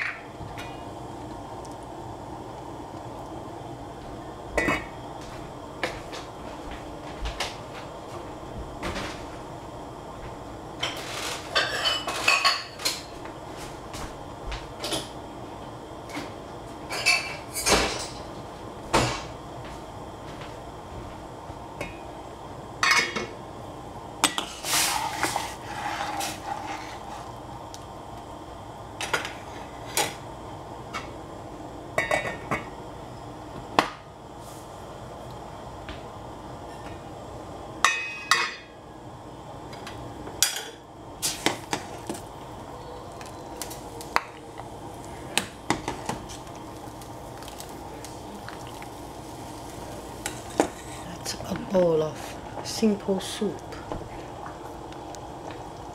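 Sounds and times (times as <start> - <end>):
kitchenware clinking: 10.8 - 13.1, 16.9 - 18.3.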